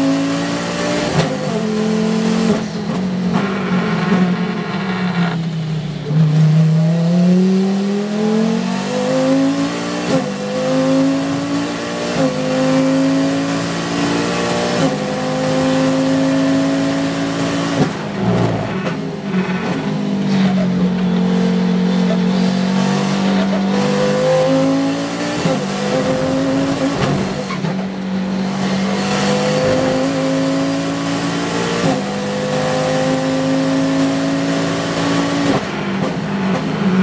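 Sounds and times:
race car engine pulling hard: 0:00.0 - 0:37.0
sharp gear upshifts: 0:24.4 - 0:32.0.

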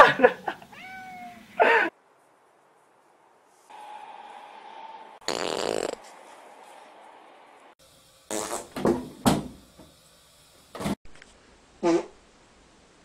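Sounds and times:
loud rasping fart: 0:05.2 - 0:06.1, 0:08.3 - 0:09.0, 0:11.8 - 0:12.2.

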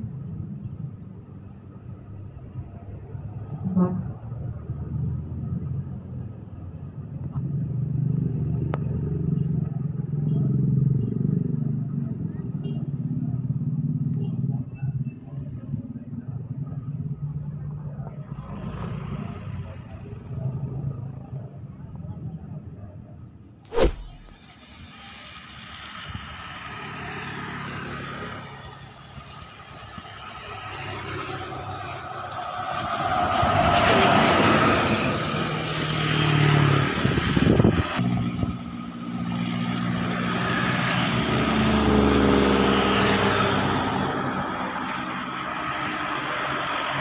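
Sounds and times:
bus engine passing: 0:23.8 - 0:47.0.

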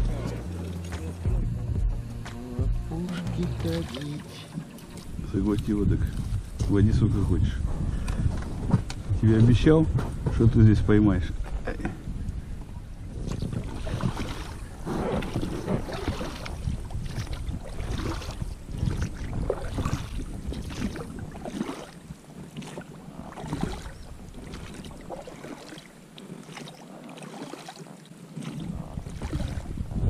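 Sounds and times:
fish splashing at the surface: 0:13.6 - 0:29.7.

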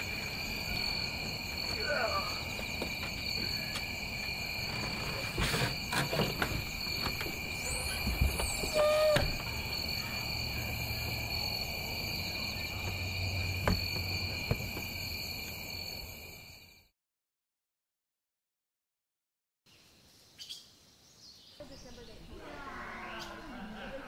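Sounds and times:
crickets trilling: 0:00.0 - 0:16.9.

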